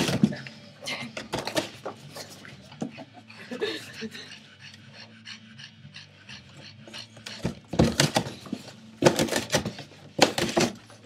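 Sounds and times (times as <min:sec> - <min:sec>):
dog growling: 0:03.6 - 0:07.6.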